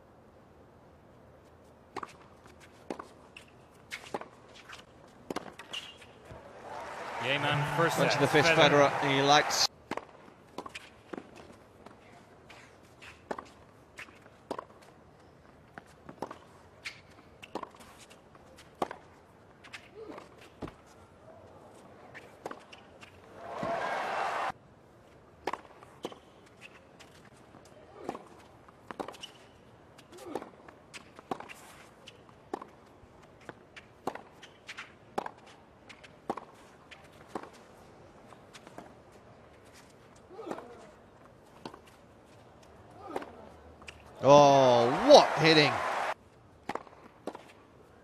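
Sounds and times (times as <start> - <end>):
tennis ball bouncing on hard court: 4.0 - 6.4, 13.3 - 14.9, 15.8 - 18.1, 32.5 - 32.8, 33.8 - 37.6, 46.6 - 47.6.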